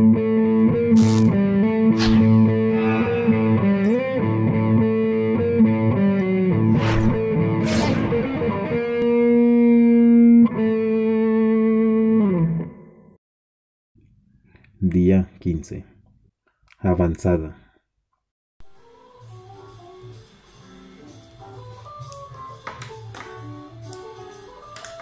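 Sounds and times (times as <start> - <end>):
distorted electric guitar music: 0.0 - 12.8
short sweeping noises: 1.9 - 2.6, 6.7 - 8.2.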